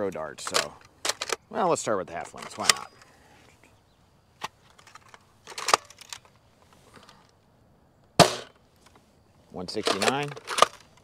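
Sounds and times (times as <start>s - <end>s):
plastic clicks and rattles: 0.1s - 1.4s, 4.4s - 6.4s, 9.8s - 11.0s
foam dart blaster shot: 8.2s - 8.5s.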